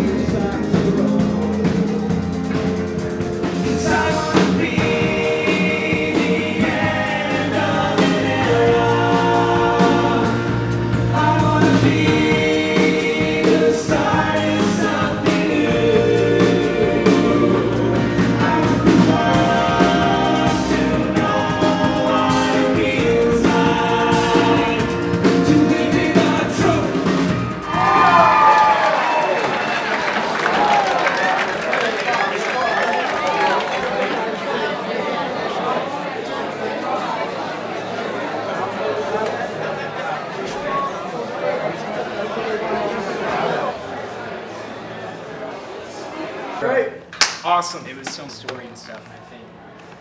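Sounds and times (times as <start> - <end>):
voices singing in harmony: 0.0 - 29.1.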